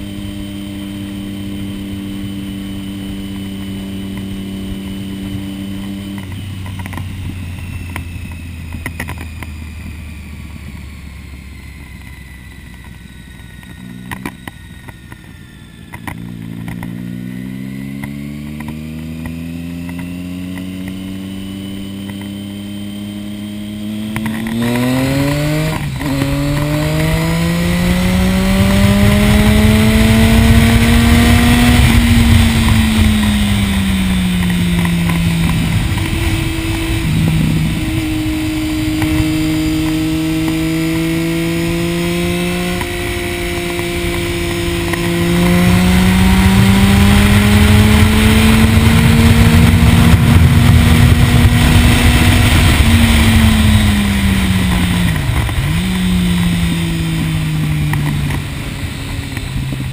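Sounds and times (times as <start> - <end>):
motorcycle engine: 0.0 - 59.9
wind noise: 20.7 - 59.9.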